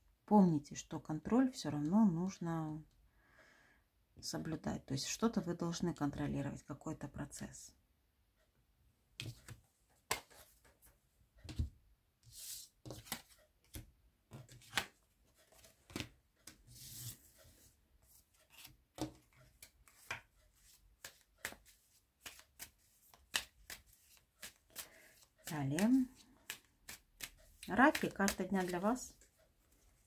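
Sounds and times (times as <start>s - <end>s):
cards being shuffled: 9.2s - 10.7s, 12.3s - 17.2s, 18.1s - 29.2s.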